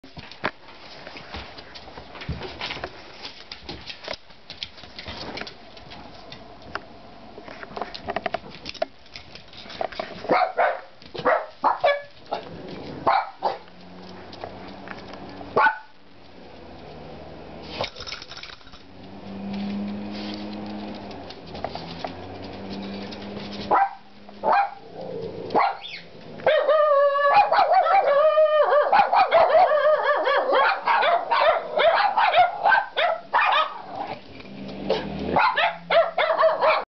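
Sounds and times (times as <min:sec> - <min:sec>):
small dogs barking and yapping: 0:10.2 - 0:16.0, 0:21.8 - 0:36.9
dogs whining: 0:24.5 - 0:32.6.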